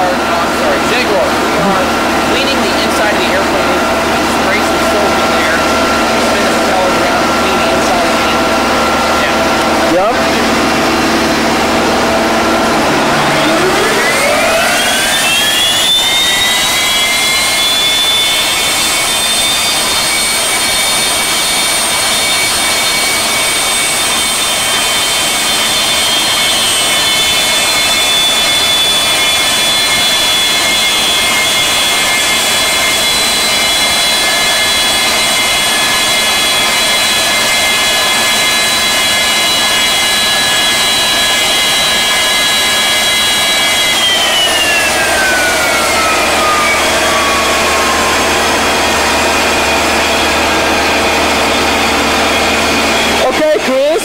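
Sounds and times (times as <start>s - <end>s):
turbine engine whine: 0.0s - 54.0s.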